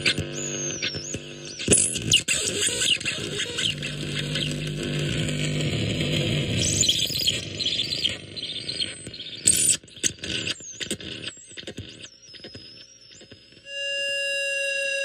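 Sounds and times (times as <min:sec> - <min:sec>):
dense electronic noise: 0:00.0 - 0:10.4
crackles and sputters: 0:00.0 - 0:14.9
electronic chirps: 0:13.7 - 0:15.0.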